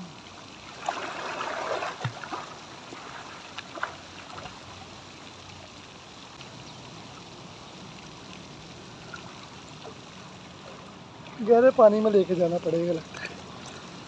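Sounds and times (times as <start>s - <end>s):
water splashing from swimmer: 0.6s - 4.8s.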